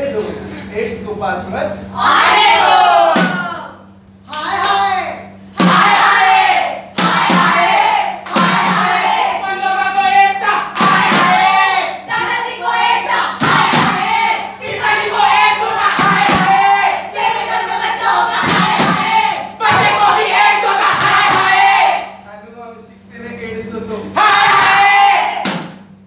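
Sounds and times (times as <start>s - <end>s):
group singing and chanting: 2.0s - 3.8s, 5.5s - 22.3s, 24.0s - 25.9s
frame drum beats: 5.6s - 6.0s, 7.0s - 9.2s, 10.8s - 11.5s, 16.0s - 16.7s, 18.4s - 20.1s.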